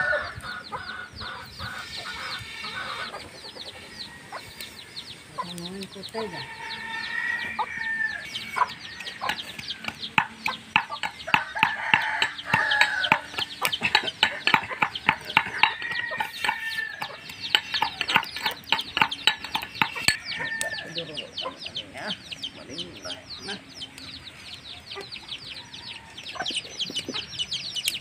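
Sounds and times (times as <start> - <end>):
chickens clucking: 0.0 - 28.0.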